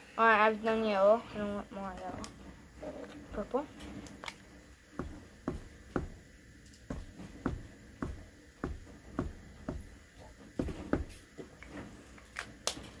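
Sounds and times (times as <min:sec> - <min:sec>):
dots tapped onto paper: 0:05.0 - 0:10.0.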